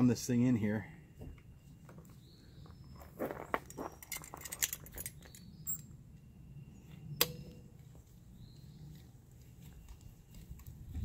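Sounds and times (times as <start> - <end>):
sharp metallic click: 7.2 - 7.6.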